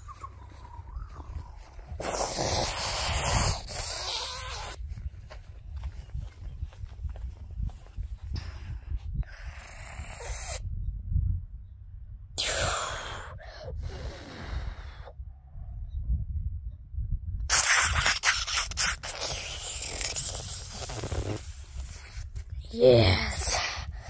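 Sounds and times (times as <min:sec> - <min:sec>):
rubbing on phone microphone: 0:17.5 - 0:22.5.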